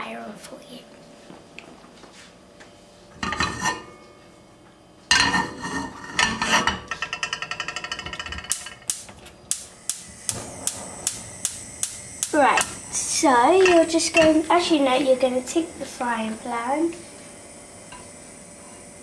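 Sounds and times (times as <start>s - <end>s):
gas igniter clicking: 8.5s - 14.5s.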